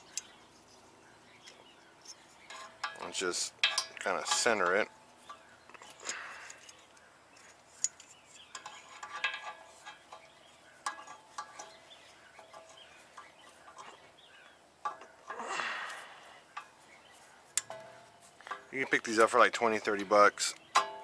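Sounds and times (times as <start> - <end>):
metal clinks and taps: 2.0 - 6.8, 7.4 - 14.0, 17.5 - 21.0
metal scraping rattle: 2.0 - 21.0.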